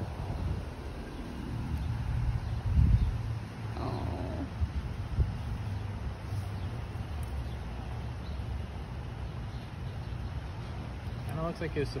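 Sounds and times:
wind buffeting microphone: 0.0s - 5.7s.

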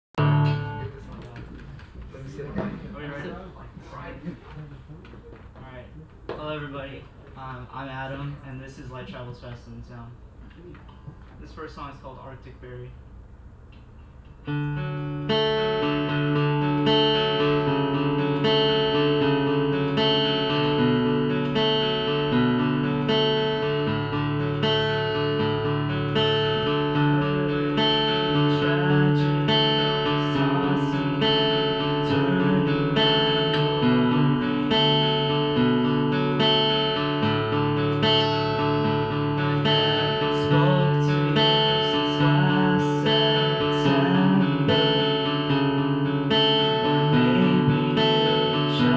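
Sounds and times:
acoustic guitar playing: 0.2s - 1.4s, 13.9s - 48.9s.

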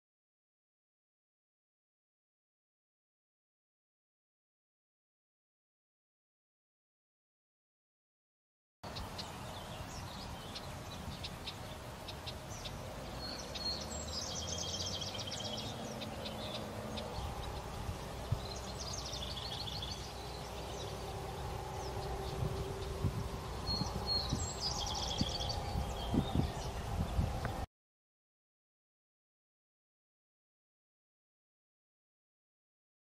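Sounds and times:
songbird trilling: 8.9s - 27.2s
low outdoor rumble: 8.9s - 27.7s.

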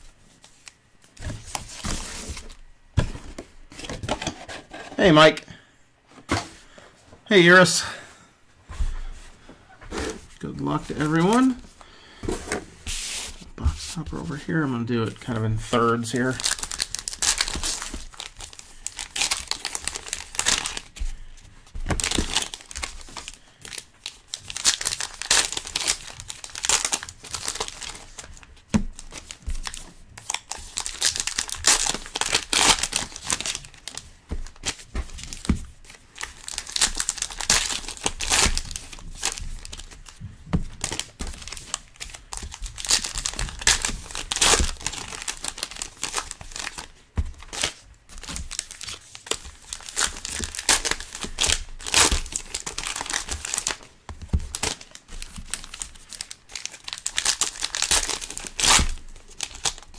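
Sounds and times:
wrappers tearing and crinkling: 15.9s - 21.0s, 21.9s - 53.9s, 54.5s - 59.9s.

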